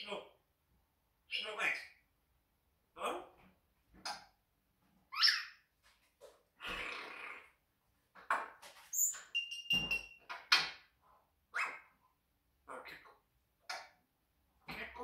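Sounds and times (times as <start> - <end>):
parrot calls and whistles: 11.5 - 11.9.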